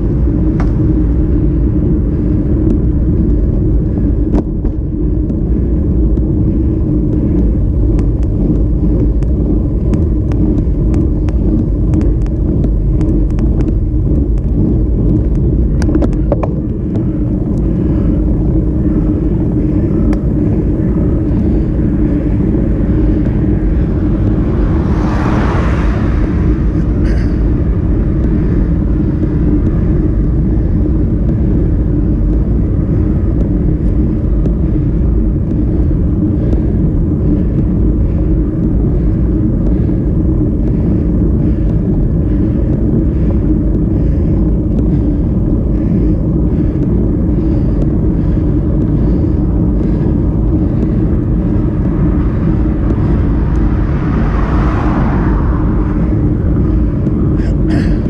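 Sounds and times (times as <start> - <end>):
road vibration rumble: 0.0 - 58.0
wind buffeting: 0.0 - 58.0
vehicle passing: 21.4 - 31.6, 51.0 - 58.0.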